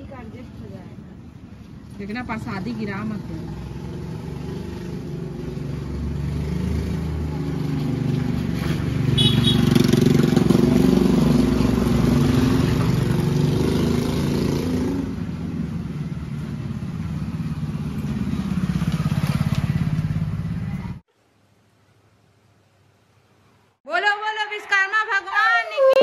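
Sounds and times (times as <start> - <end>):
motorbike engine running: 8.6 - 13.4.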